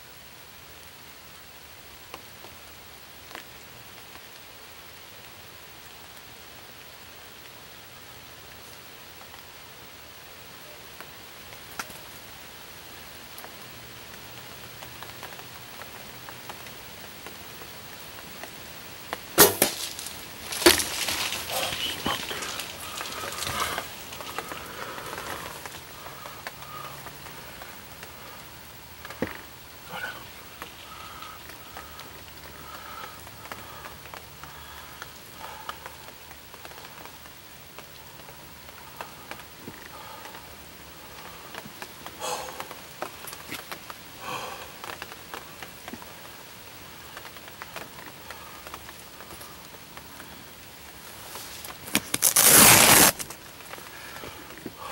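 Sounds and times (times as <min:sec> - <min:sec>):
light rain hiss: 0:00.0 - 0:54.9
rustling and knocks of movement: 0:18.4 - 0:34.3
bow shot crack: 0:19.4 - 0:23.8.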